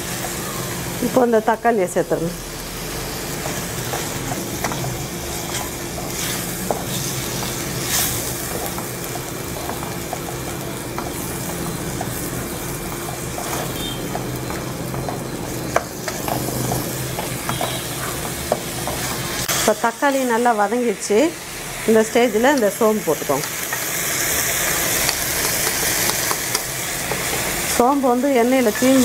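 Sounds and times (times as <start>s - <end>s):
vegetables sizzling in oil: 0.0s - 29.0s.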